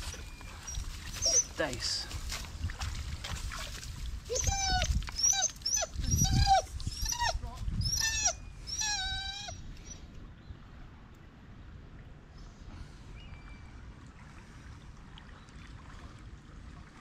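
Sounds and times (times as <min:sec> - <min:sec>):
dog whining: 0:00.1 - 0:01.6, 0:04.3 - 0:10.0.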